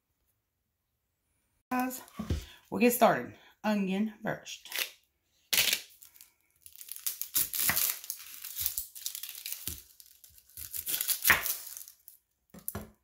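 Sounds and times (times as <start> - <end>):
onion skin crackling: 4.7 - 12.8
knife cutting onion: 10.4 - 11.8.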